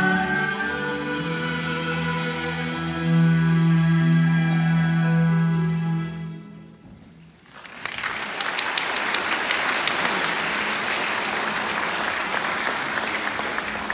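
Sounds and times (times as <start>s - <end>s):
audience applause: 7.4s - 13.9s.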